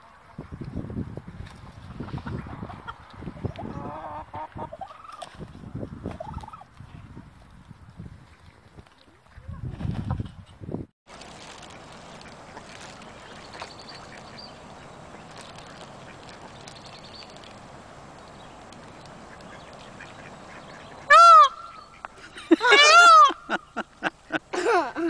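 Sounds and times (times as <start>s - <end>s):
peacock honking calls: 19.5s - 23.6s.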